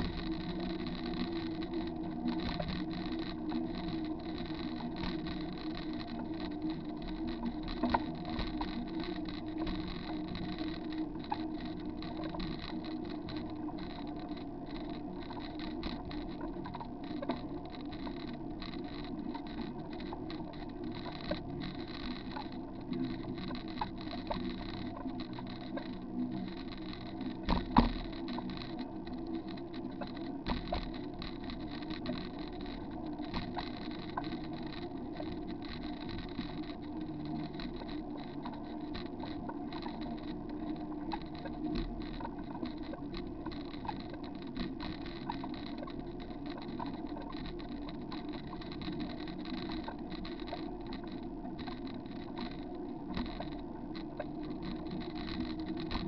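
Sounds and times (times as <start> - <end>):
bicycle knocks and rattles: 27.4 - 28.5.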